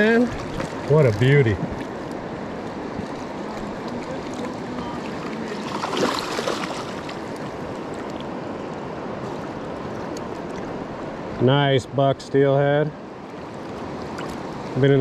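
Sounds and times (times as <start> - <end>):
river running over rocks: 0.0 - 11.4
fish thrashing and splashing: 2.8 - 8.3.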